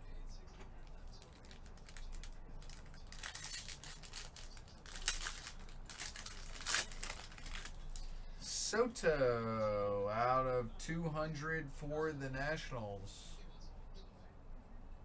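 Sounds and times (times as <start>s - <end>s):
foil wrapping crinkling and tearing: 0.8s - 8.1s.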